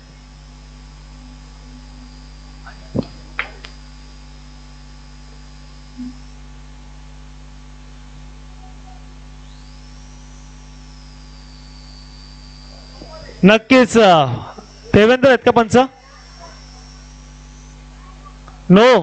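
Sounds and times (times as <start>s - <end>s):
electrical mains hum: 0.0s - 19.0s.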